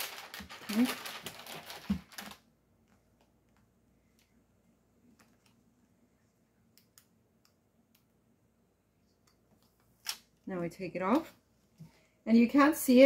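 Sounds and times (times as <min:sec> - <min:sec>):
paper rustling: 0:00.0 - 0:02.4.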